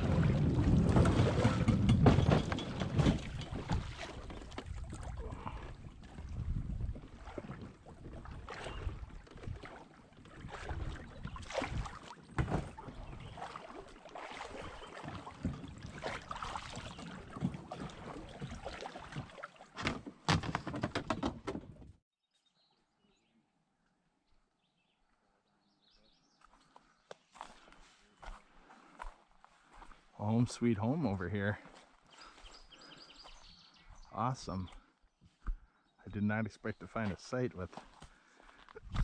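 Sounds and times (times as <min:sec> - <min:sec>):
kayak knocking and scraping on wood: 0:00.0 - 0:22.0.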